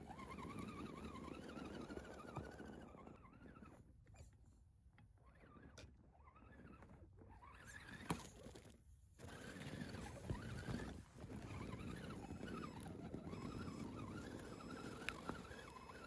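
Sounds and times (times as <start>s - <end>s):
electric motor and gears whining: 9.3s - 16.0s.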